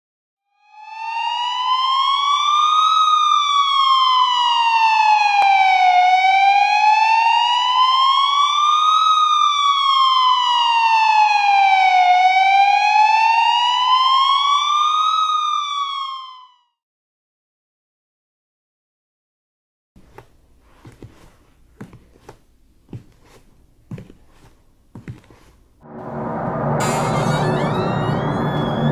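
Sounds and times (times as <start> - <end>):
siren wailing up and down: 0.5 - 16.8, 25.8 - 28.9.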